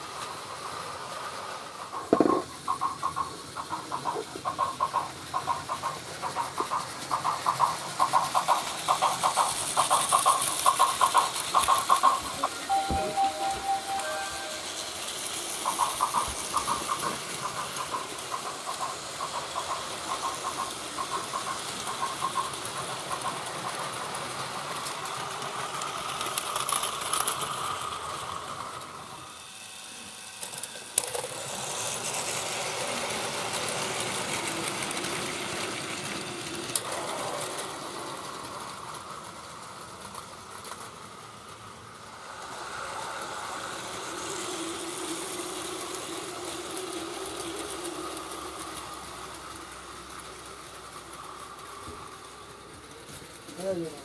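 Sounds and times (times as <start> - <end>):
toy train motors whirring: 0.0 - 54.0
plastic wheels rattling on track: 1.9 - 12.6, 15.3 - 29.0, 43.5 - 54.0.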